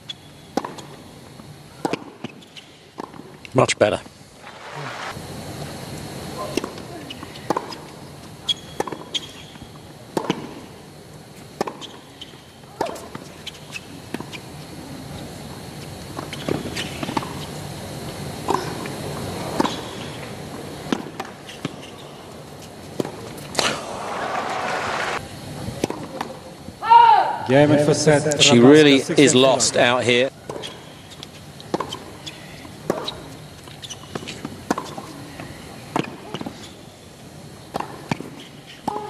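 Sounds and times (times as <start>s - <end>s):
racket striking tennis ball: 0.6s - 0.9s, 10.2s - 10.5s, 11.6s - 12.0s, 23.0s - 25.2s, 31.7s - 32.1s, 32.8s - 33.2s
crowd applauding: 23.7s - 25.2s.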